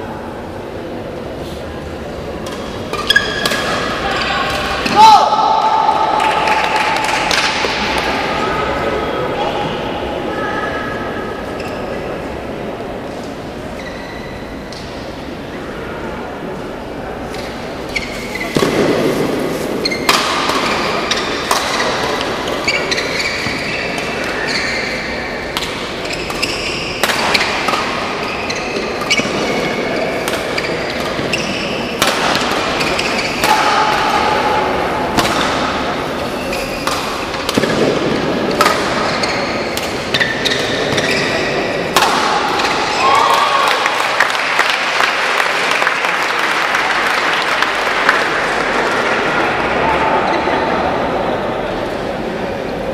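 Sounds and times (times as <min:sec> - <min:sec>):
shoes squeaking on court: 0:17.4 - 0:18.6, 0:19.6 - 0:25.2, 0:26.0 - 0:29.9, 0:30.5 - 0:32.0, 0:36.2 - 0:37.4, 0:39.0 - 0:41.9
rackets striking shuttlecock: 0:20.0 - 0:23.1, 0:25.4 - 0:28.2, 0:30.2 - 0:34.2, 0:35.1 - 0:35.9, 0:36.7 - 0:41.2, 0:41.9 - 0:43.0.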